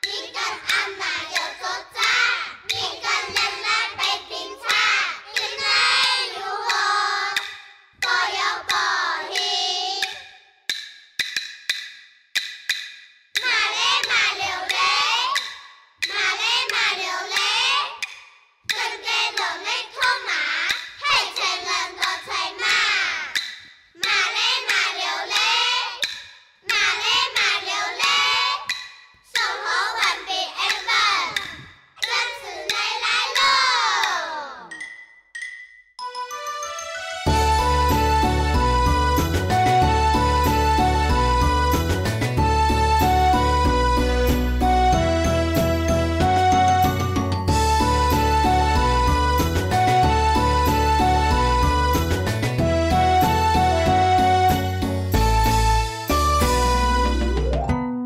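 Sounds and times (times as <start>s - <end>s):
children singing folk song: 0.0s - 10.3s, 13.4s - 34.7s
sharp percussive taps: 0.0s - 35.8s.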